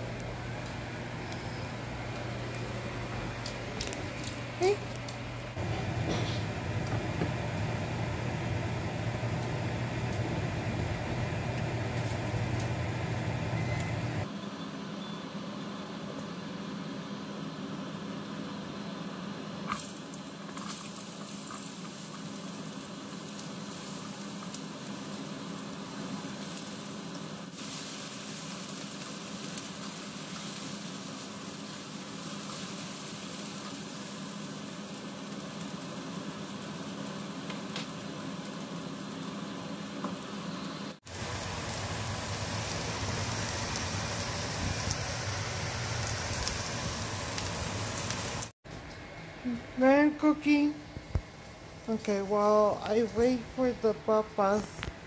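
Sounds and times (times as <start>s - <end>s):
potatoes sizzling in oil: 19.7s - 48.5s.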